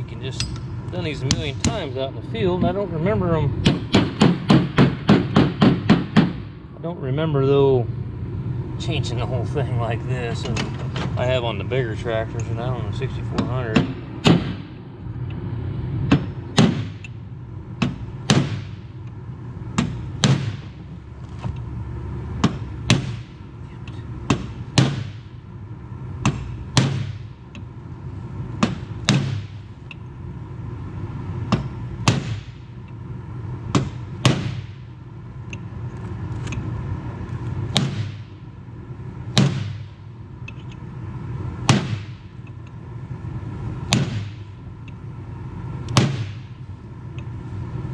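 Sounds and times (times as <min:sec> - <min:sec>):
steady low hum: 0:00.0 - 0:47.9
hammer striking steel punch: 0:13.4 - 0:14.7, 0:16.1 - 0:17.2, 0:17.8 - 0:18.9, 0:26.2 - 0:27.3, 0:28.6 - 0:29.7, 0:31.5 - 0:32.6, 0:33.7 - 0:34.8, 0:37.7 - 0:38.4, 0:39.4 - 0:40.0, 0:41.6 - 0:42.3, 0:43.9 - 0:44.5, 0:45.9 - 0:46.6.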